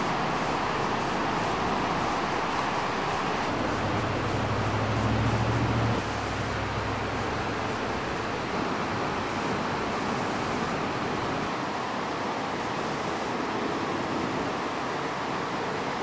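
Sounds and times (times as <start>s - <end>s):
low engine-like hum: 0.0s - 11.6s
outdoor rushing noise: 0.0s - 16.0s.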